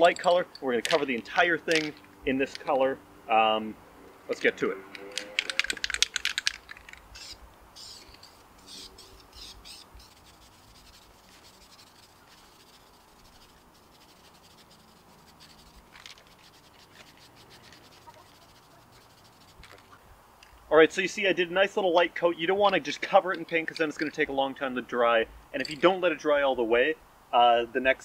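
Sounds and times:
spray can ball rattling: 0.0 - 2.7, 5.0 - 20.0
spray paint hissing: 5.5 - 20.0.

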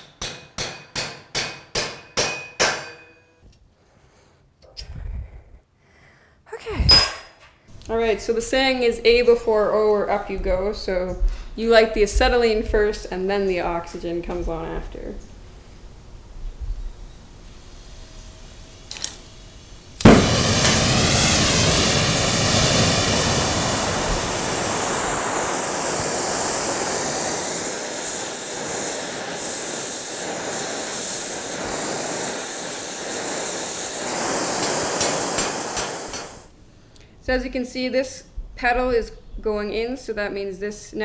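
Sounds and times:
torch flame rushing hiss: 17.4 - 36.6.

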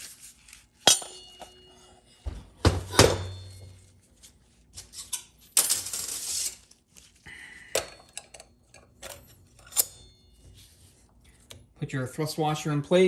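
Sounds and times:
metallic ring: 0.8 - 2.2, 3.2 - 4.1, 7.8 - 10.8.

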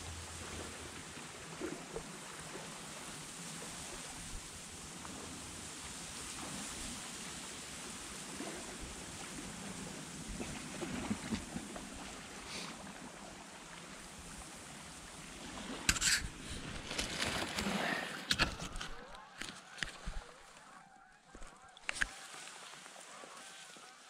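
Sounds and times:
rustling dry reeds: 15.9 - 24.0.

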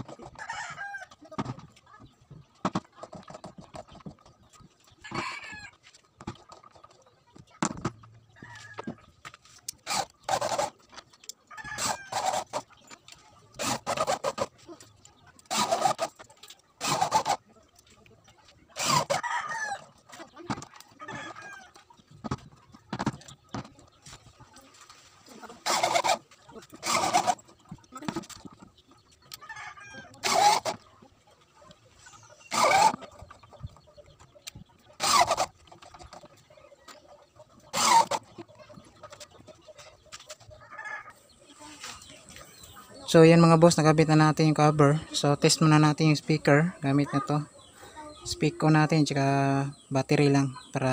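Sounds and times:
electric drill driving screws: 11.8 - 12.6, 15.5 - 16.1, 16.8 - 17.4, 18.8 - 19.2, 25.6 - 26.2, 26.8 - 27.4, 30.2 - 30.8, 32.5 - 33.0, 35.0 - 35.5, 37.7 - 38.2.

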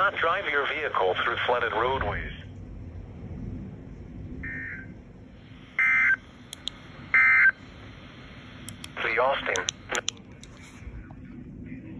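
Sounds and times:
radio hiss: 0.0 - 2.4, 4.8 - 11.9.

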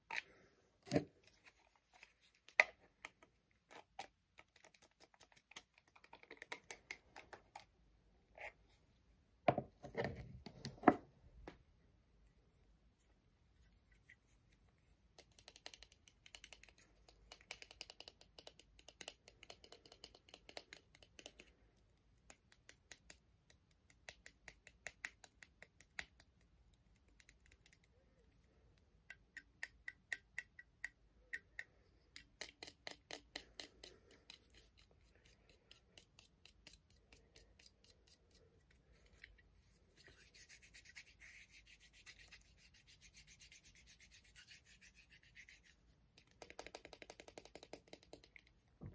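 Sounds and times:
hands rubbing together: 39.7 - 45.8.

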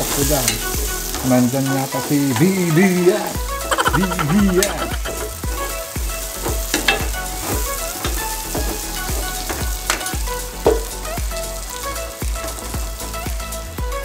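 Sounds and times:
spatula scraping a pan: 0.0 - 11.0
background music with beat: 0.0 - 14.0
onion sizzling in hot oil: 0.0 - 14.0.

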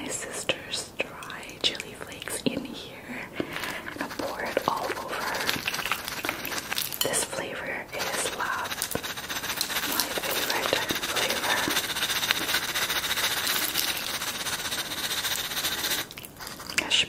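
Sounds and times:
chips pouring onto salad: 3.6 - 7.2, 7.9 - 16.9.

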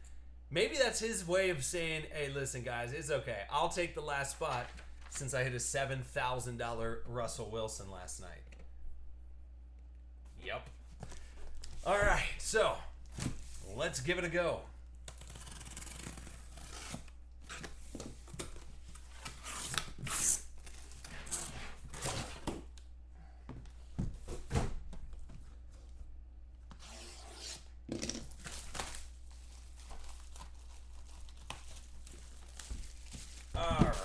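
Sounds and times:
tape and cardboard ripping: 15.1 - 22.6, 26.7 - 29.1.

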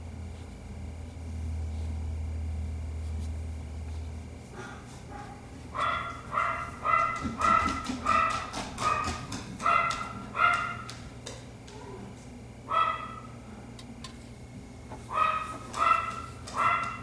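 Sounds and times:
dog barking: 4.6 - 11.0, 12.7 - 13.4, 15.1 - 17.0.

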